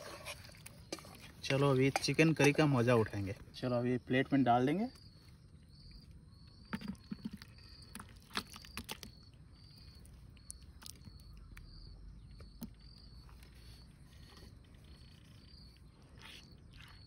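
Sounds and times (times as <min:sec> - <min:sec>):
utensil scraping pot: 0:00.0 - 0:03.3.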